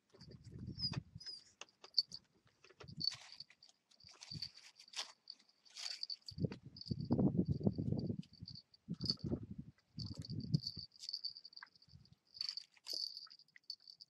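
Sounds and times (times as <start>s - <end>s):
puppies scuffling on dirt: 0.6s - 6.5s
crickets chirping: 10.0s - 14.0s.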